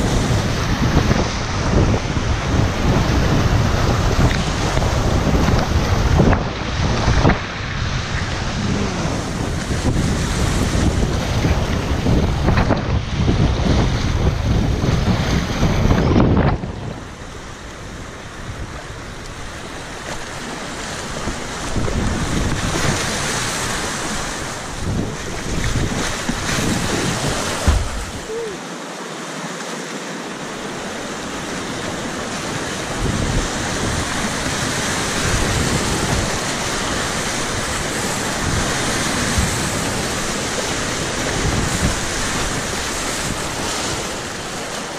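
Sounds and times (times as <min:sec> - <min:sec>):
wind buffeting microphone: 0:00.0 - 0:28.5, 0:30.7 - 0:44.9
river water rushing: 0:00.0 - 0:44.9
paddle splashes: 0:14.9 - 0:44.9.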